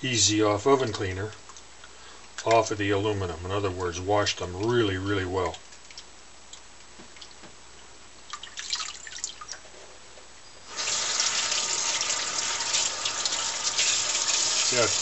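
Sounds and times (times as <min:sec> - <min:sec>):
faucet water running into sink: 0:08.4 - 0:09.5, 0:10.7 - 0:15.0.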